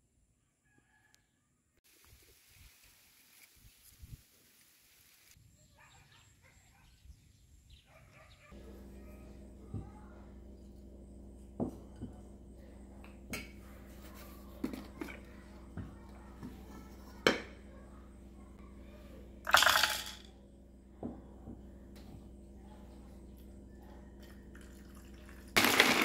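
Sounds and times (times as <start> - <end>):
low hum: 8.6 - 16.1.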